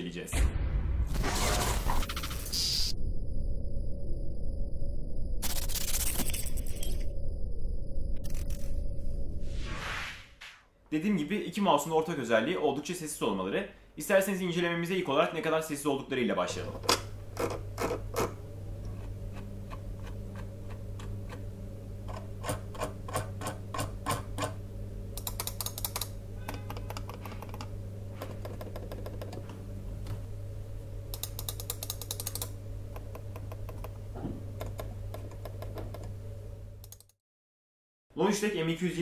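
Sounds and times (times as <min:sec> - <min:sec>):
low hum: 0:00.3 - 0:10.6, 0:16.5 - 0:37.0
computer mouse clicks: 0:25.2 - 0:29.4, 0:31.1 - 0:34.0, 0:34.6 - 0:36.1, 0:36.8 - 0:37.2
muffled mouse clicks: 0:31.1 - 0:34.0.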